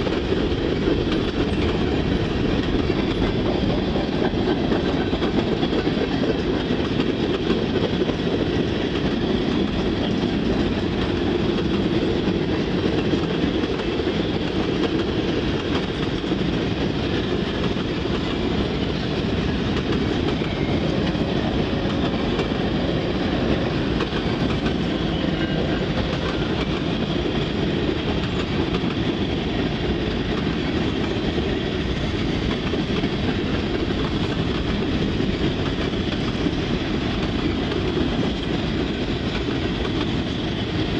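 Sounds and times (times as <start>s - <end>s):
train wheels rolling over rails: 0.0s - 40.9s.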